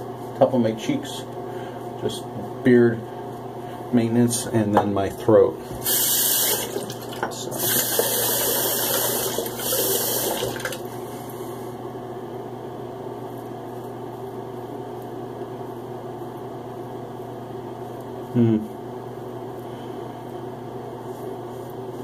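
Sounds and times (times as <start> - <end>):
steady low hum: 0.0 - 22.0
water running from a tap: 5.8 - 10.9.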